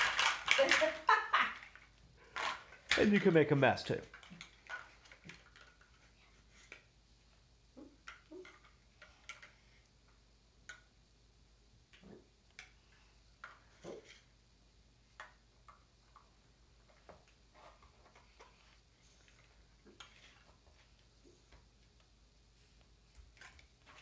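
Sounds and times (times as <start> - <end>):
plastic toy blocks clicking: 0.0 - 3.4, 4.0 - 6.0, 8.0 - 9.5.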